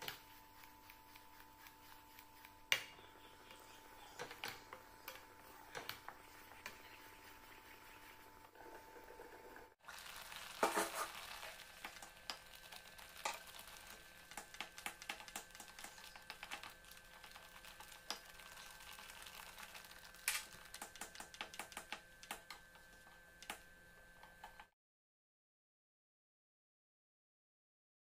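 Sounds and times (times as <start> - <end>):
spatula scraping pan: 3.2 - 9.7, 10.4 - 19.4
gravy spattering and crackling: 9.8 - 22.4.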